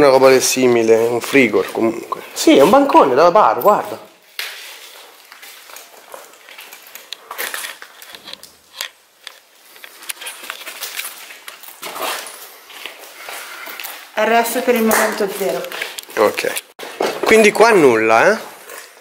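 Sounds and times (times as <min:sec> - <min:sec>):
footsteps crunching on debris: 0:04.2 - 0:17.6.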